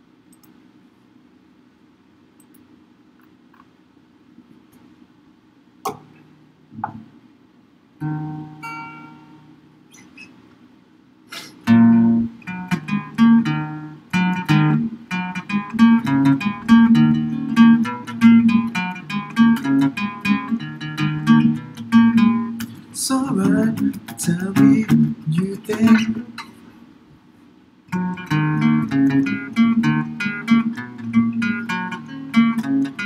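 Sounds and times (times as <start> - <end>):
rhythmic guitar accompaniment: 6.8 - 7.1, 8.0 - 10.3, 11.4 - 26.6, 27.9 - 33.0
acoustic guitar chord: 8.0 - 9.6, 11.3 - 26.5.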